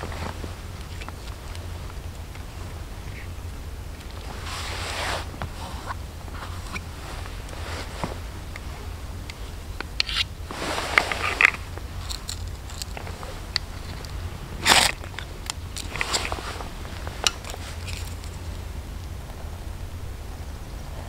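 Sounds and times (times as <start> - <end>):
stones knocking and scraping: 9.8 - 18.6.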